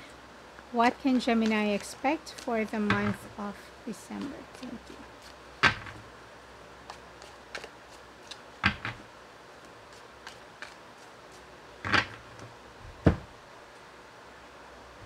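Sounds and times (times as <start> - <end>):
cards shuffled and tapped on table: 4.2 - 6.0, 6.9 - 9.0, 9.6 - 11.1.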